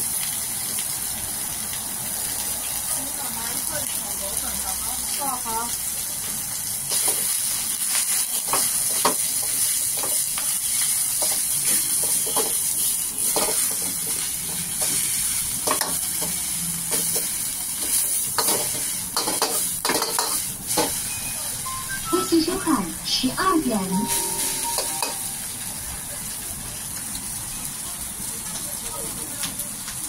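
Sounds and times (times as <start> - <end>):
food sizzling in a wok: 0.0 - 23.0, 23.8 - 30.0
ladle scraping and knocking wok: 15.7 - 21.0.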